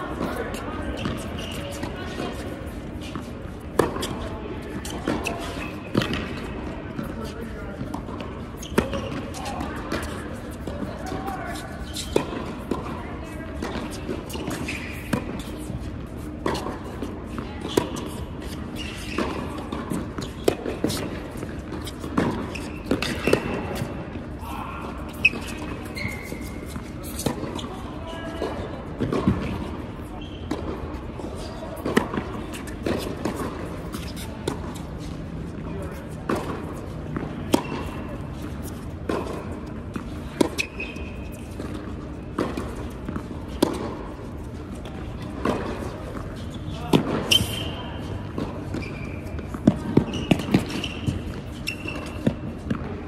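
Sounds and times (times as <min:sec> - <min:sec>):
tennis ball hit by racquets: 0:01.0 - 0:13.0, 0:13.6 - 0:15.8, 0:16.4 - 0:24.1, 0:28.4 - 0:52.9
high squeak: 0:25.1 - 0:27.8, 0:40.6 - 0:41.4, 0:46.4 - 0:48.0, 0:48.8 - 0:49.4, 0:50.0 - 0:52.3.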